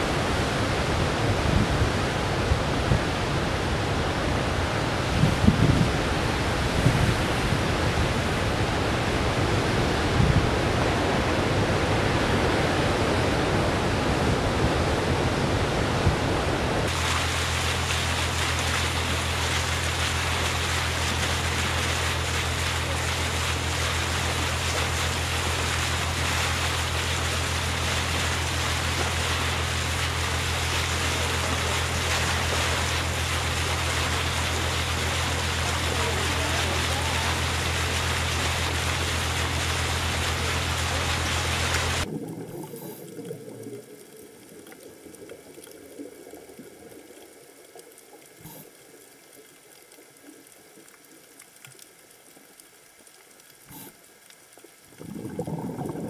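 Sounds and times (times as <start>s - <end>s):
heavy surf waves breaking: 0.0s - 42.6s
boat engine hum: 15.4s - 44.5s
bow wave rushing: 16.9s - 44.0s.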